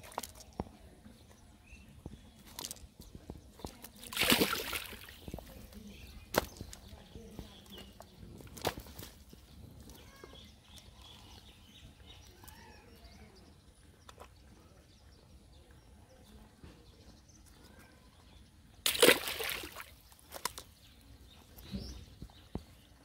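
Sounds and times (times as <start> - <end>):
faint bird chirps: 9.8 - 18.6.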